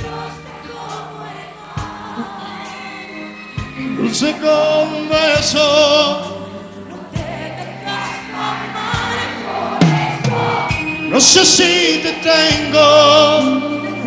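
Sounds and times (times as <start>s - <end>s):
backing vocals: 0.0s - 14.0s
live pop band: 0.0s - 14.0s
man singing lead vocal: 3.8s - 7.6s, 10.8s - 14.0s.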